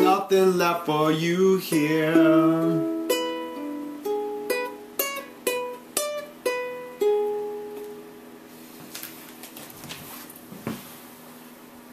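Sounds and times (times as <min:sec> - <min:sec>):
ukulele plucking blues notes: 0:00.0 - 0:08.3.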